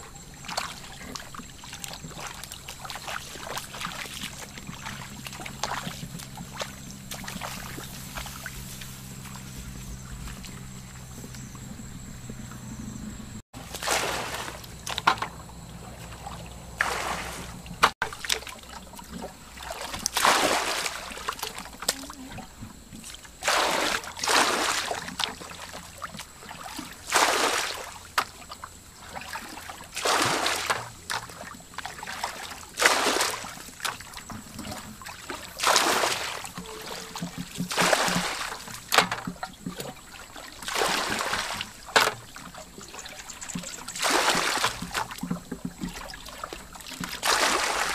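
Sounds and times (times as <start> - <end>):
hands splashing in water: 13.6 - 15.2, 16.0 - 22.1, 26.6 - 28.0, 29.2 - 47.9.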